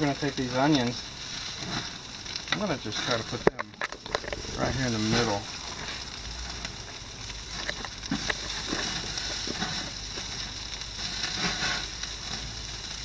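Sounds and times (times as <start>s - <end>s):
food sizzling on grill: 0.0s - 13.0s
plastic bag rustling: 3.0s - 10.4s.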